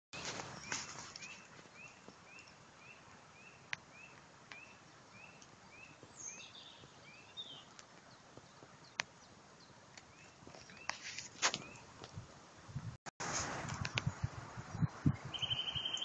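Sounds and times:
songbird rising call: 15.1s - 16.0s
second bird chirps: 15.3s - 16.0s.

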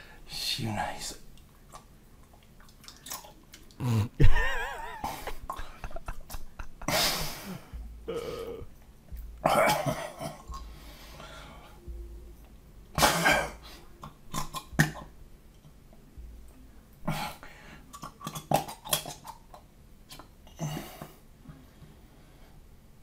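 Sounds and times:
man gulping and gurgling: 1.5s - 4.4s, 5.0s - 10.8s, 13.0s - 15.2s, 17.0s - 21.2s
man grunting: 3.8s - 4.2s.

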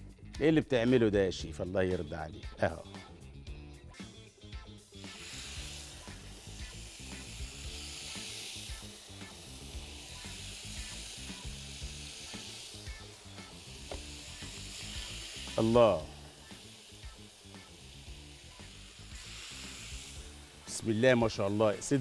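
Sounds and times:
chicken sizzling on grill pan: 4.9s - 22.0s.

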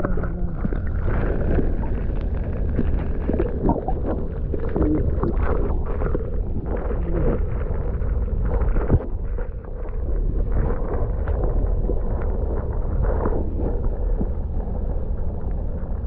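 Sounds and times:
small ticks and gurgles: 0.0s - 14.5s
underwater creek rumble: 0.0s - 16.0s.

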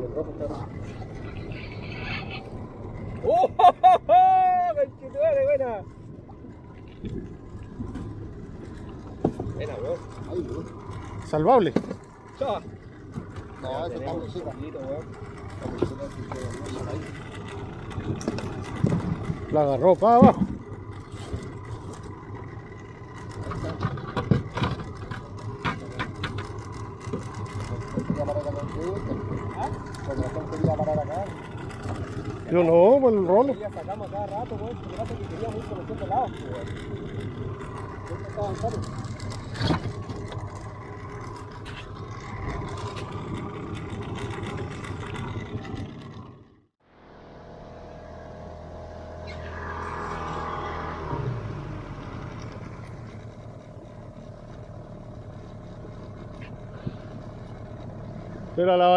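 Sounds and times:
boat engine idling: 0.0s - 58.9s
water noise: 0.0s - 58.9s
wind: 0.0s - 58.9s
sharp clicks and knocks: 23.2s - 28.5s.

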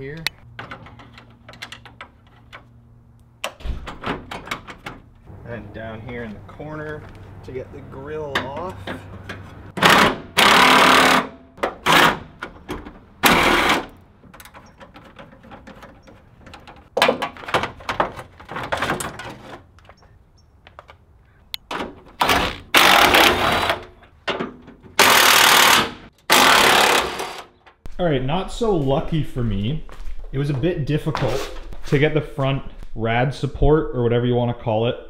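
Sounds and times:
metal and plastic clatter: 0.4s - 2.7s, 14.2s - 20.0s.

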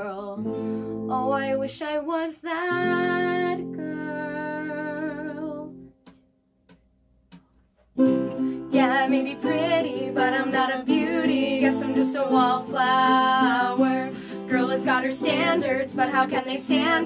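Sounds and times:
woman singing: 0.0s - 5.8s, 8.6s - 17.0s
strummed ukulele: 8.0s - 17.0s.

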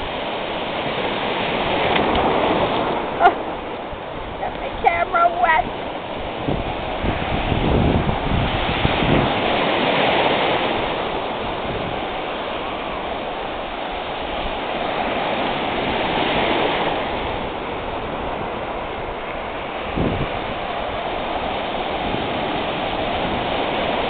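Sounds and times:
ocean surf breaking on beach: 0.0s - 24.0s.

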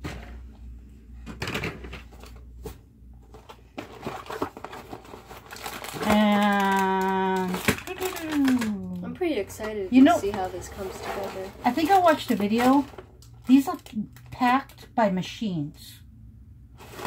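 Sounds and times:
plastic bags rustling: 1.4s - 14.7s, 16.8s - 17.0s.

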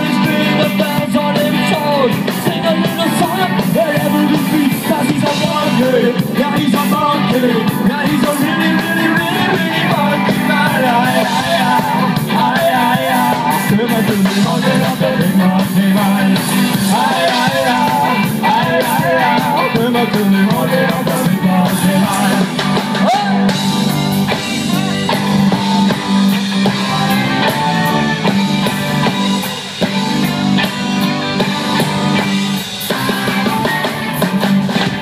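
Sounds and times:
lead vocal singing: 0.0s - 23.7s
live rock band playing: 0.0s - 35.0s.

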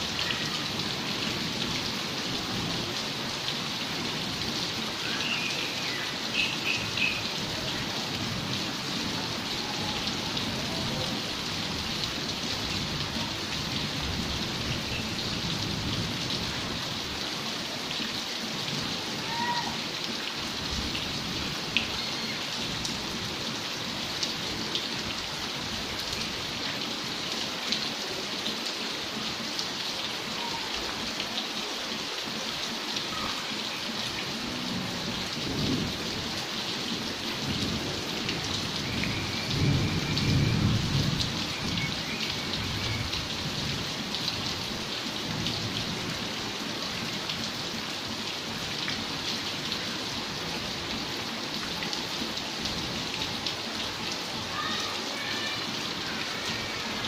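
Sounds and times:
steady rain falling: 0.0s - 57.0s
low rumble of thunder: 34.6s - 36.2s, 37.4s - 42.0s.

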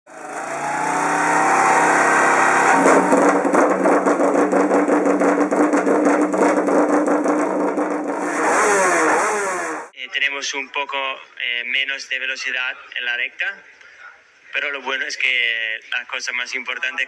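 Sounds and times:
motorcycle engine revving: 0.1s - 9.9s.

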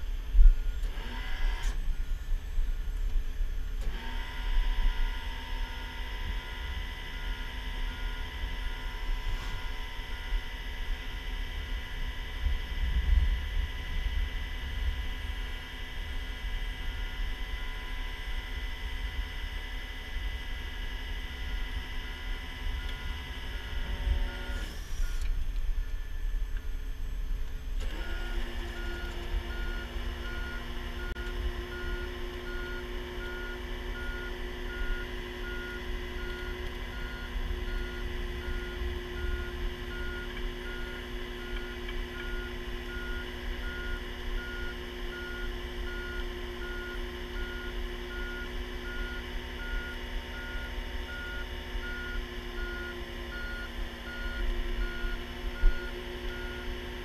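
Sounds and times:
truck engine running: 0.0s - 57.0s
backup alarm beeping: 4.9s - 10.5s, 28.0s - 56.8s.

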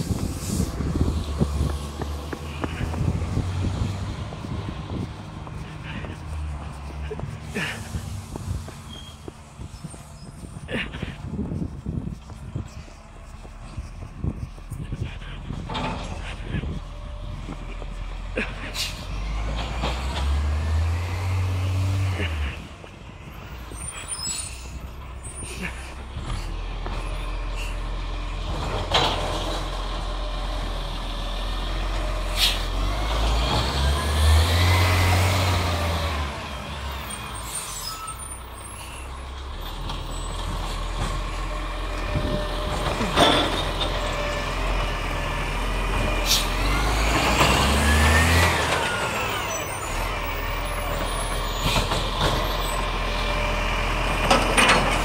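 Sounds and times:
truck diesel engine revving: 0.0s - 11.4s, 12.5s - 55.0s
air brake hisses: 32.3s - 32.7s, 46.2s - 46.6s.

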